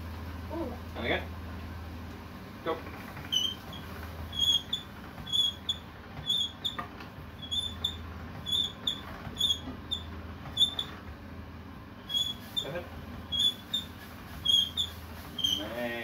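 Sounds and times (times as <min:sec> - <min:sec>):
pasta roller squeaking: 0:03.2 - 0:11.0, 0:12.0 - 0:16.0.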